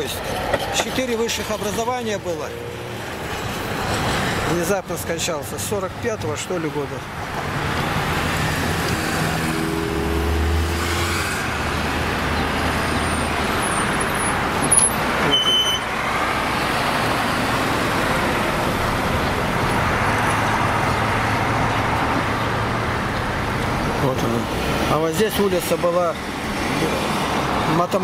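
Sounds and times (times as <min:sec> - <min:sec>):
road traffic from moving car: 0:00.0 - 0:28.0
short high squeak: 0:14.7 - 0:15.9.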